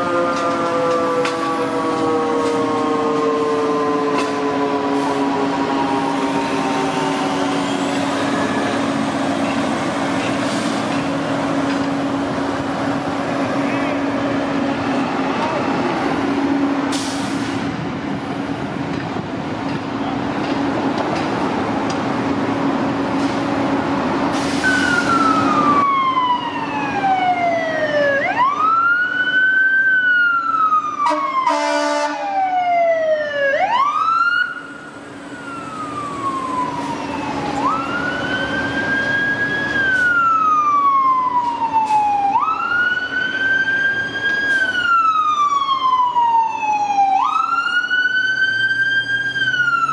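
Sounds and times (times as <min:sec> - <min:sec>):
fire engine siren wailing: 0:00.0 - 0:49.9
traffic and engine noise: 0:00.0 - 0:49.9
air horn blast: 0:31.0 - 0:32.3.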